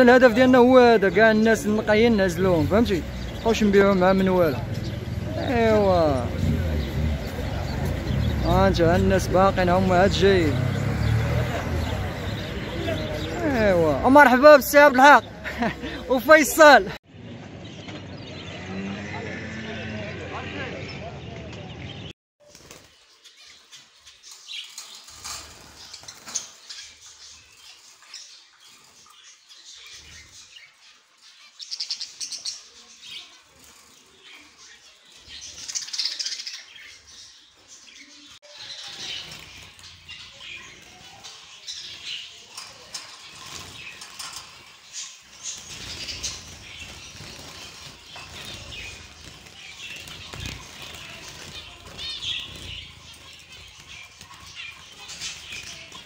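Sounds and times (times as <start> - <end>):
songbirds chirping and twittering: 0.0 - 56.0
wing flutters: 22.4 - 29.0, 38.6 - 56.0.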